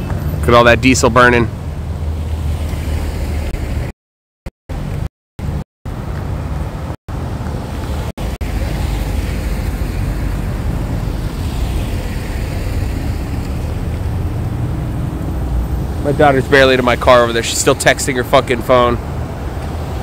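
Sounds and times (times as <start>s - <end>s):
road traffic: 0.0s - 3.9s, 4.7s - 20.0s
wind rumble on microphone: 6.0s - 16.5s.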